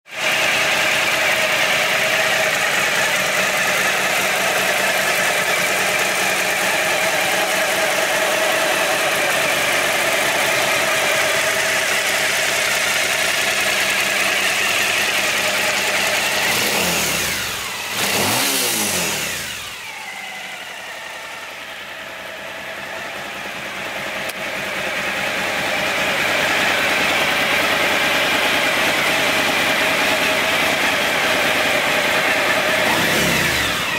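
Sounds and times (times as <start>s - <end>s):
motorcycle engine idling: 0.1s - 33.9s.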